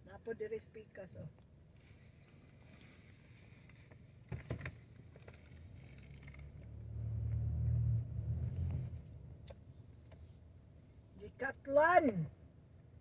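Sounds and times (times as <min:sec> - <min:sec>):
car interior rumble: 0:02.2 - 0:12.2.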